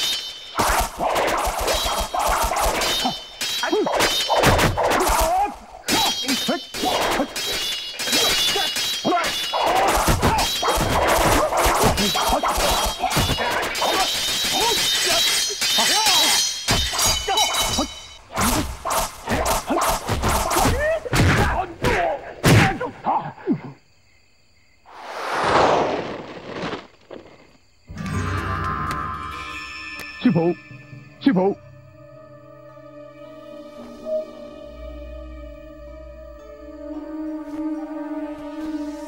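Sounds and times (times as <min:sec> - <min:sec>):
sword blades clashing: 0:00.0 - 0:20.8.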